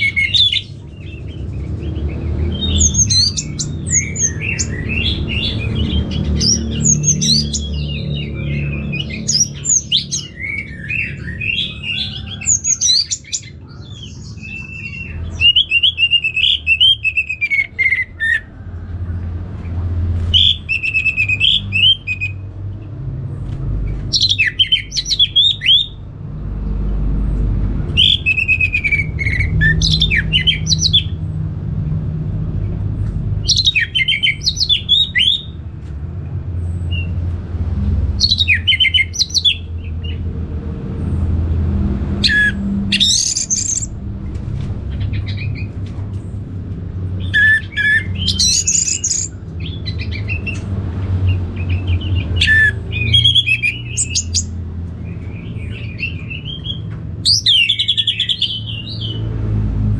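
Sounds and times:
thrush singing whistled notes: 20.2 - 22.4, 28.0 - 31.1, 47.2 - 50.6.

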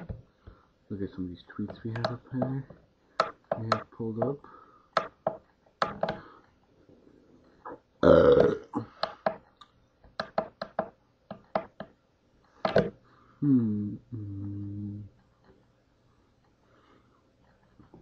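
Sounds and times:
person burping: 7.7 - 9.0.

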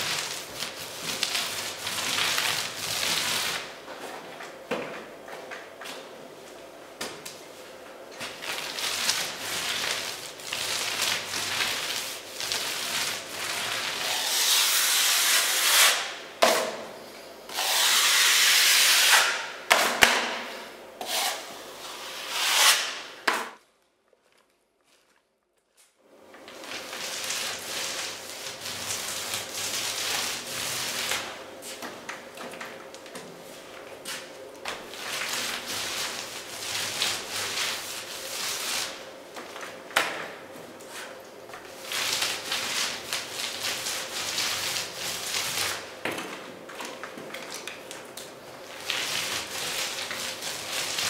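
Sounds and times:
filler blade scraping a wall: 8.8 - 16.2, 17.5 - 19.5, 21.0 - 23.5.

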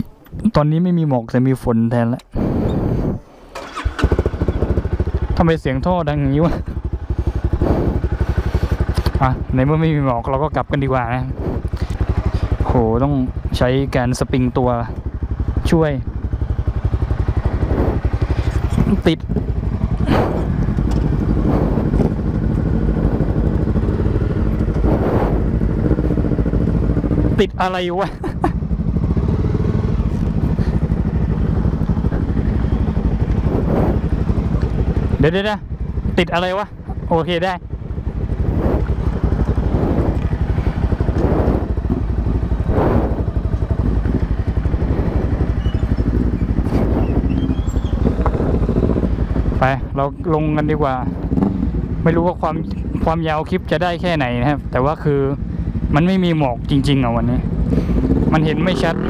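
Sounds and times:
rushes of noise: 2.2 - 5.4, 6.8 - 9.4, 11.2 - 12.8, 16.3 - 27.6, 28.4 - 49.9
motorcycle engine idling: 2.2 - 59.0.

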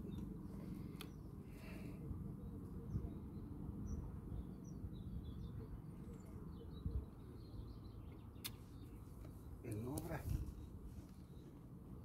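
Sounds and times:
faint birds chirping: 0.0 - 12.0
low outdoor rumble: 0.0 - 12.0.

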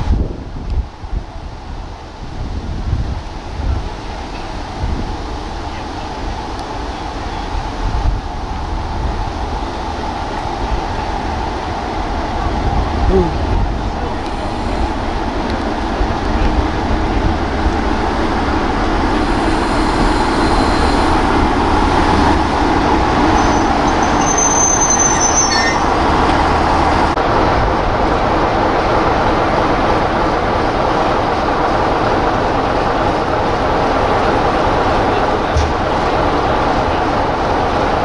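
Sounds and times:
diesel locomotive passing: 0.0 - 38.0
diesel locomotive engine running: 2.9 - 38.0
high-pitched squeal: 18.4 - 27.2.

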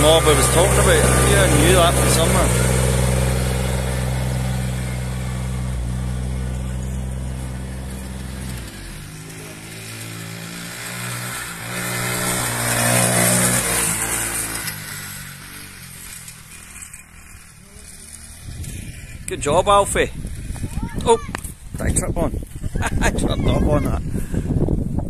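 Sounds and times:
mower diesel engine running: 0.0 - 18.7
quad engine revving: 0.0 - 20.8.

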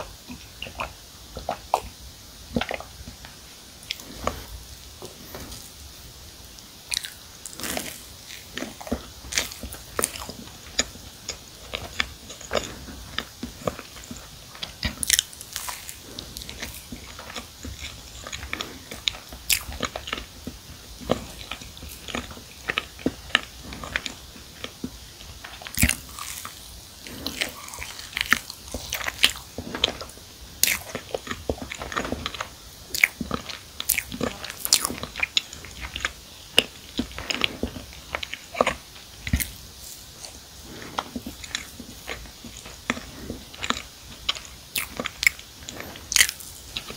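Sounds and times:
chewing and biting cookies: 0.0 - 46.9.

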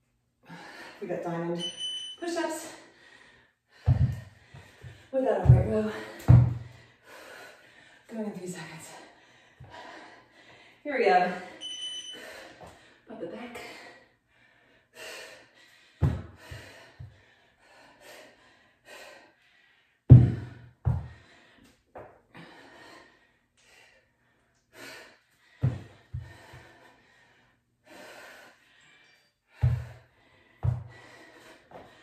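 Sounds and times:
woman breathing hard: 0.4 - 1.0, 2.8 - 8.1, 8.8 - 32.0
thuds on rubber floor: 3.9 - 6.7, 16.0 - 16.4, 20.1 - 21.2, 25.6 - 26.4, 30.6 - 31.0.

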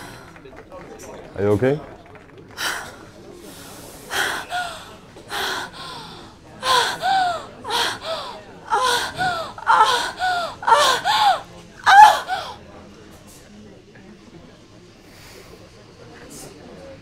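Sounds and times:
woman moaning and gasping: 4.1 - 12.6.

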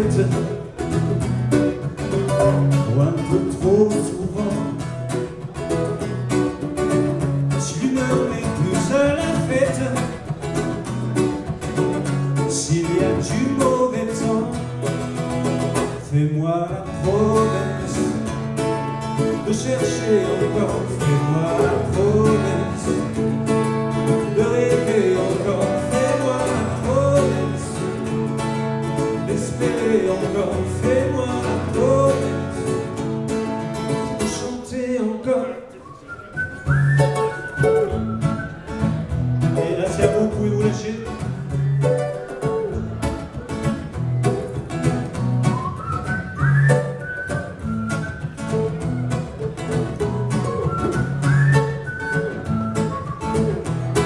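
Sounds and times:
ukulele playing: 0.0 - 16.1, 36.0 - 54.0
acoustic guitar: 0.0 - 54.0.

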